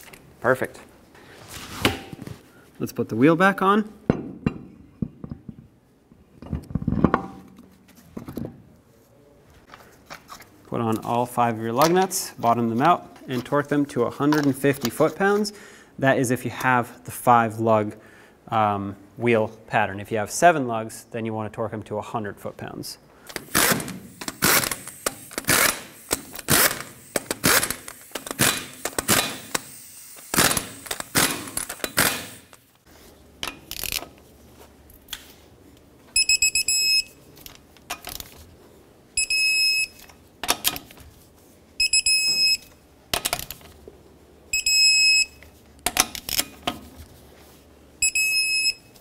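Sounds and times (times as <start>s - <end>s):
torque wrench electronic beep: 36.2s - 37.2s, 39.2s - 40.0s, 41.8s - 42.7s, 44.6s - 45.4s, 48.0s - 48.9s.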